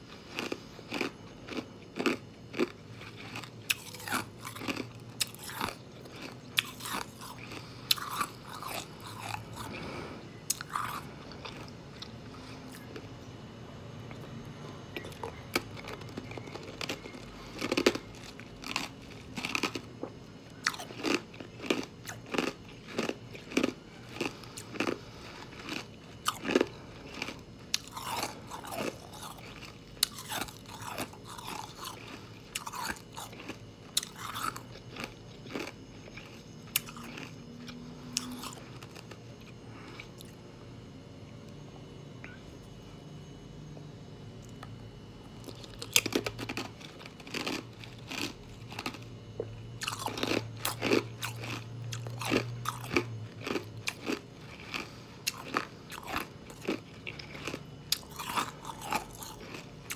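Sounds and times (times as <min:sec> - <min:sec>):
ice being chewed: 0:00.0 - 0:13.4, 0:14.0 - 0:40.4, 0:45.3 - 0:59.9.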